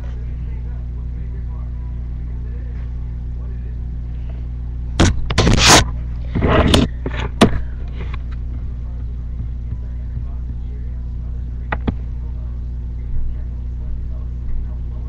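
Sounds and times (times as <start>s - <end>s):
steady low hum: 0.0s - 15.0s
sharp click: 5.0s - 7.6s, 11.7s - 12.0s
loud bursts of noise: 5.0s - 8.2s.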